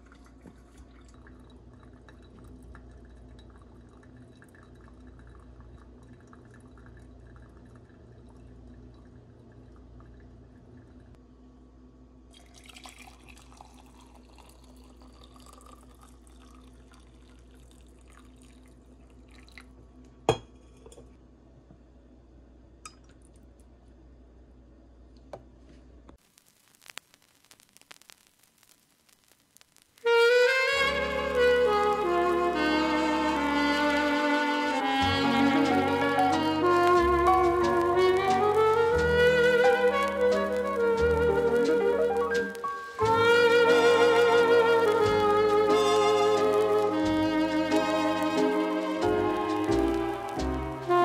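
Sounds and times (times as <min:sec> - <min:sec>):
coffee pouring into mug: 0:00.0 - 0:11.1, 0:12.3 - 0:19.8
coffee dripping through filter: 0:00.0 - 0:11.2, 0:12.3 - 0:20.1, 0:26.2 - 0:30.2, 0:35.0 - 0:51.0.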